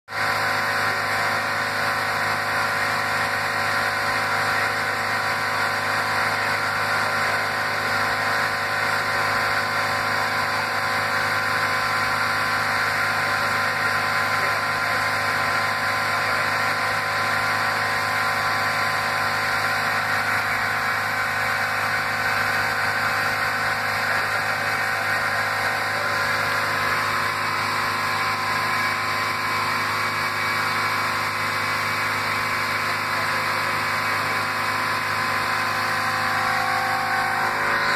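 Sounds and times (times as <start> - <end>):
spinning wheels humming: 0.6 - 37.9.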